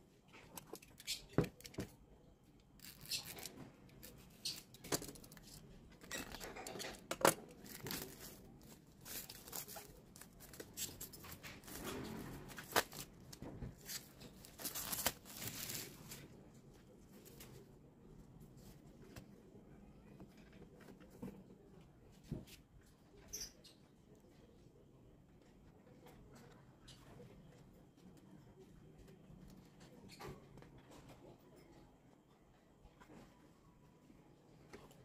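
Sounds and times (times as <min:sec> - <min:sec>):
plastic shrink-wrap crinkling: 0:07.6 - 0:11.8, 0:13.8 - 0:16.2.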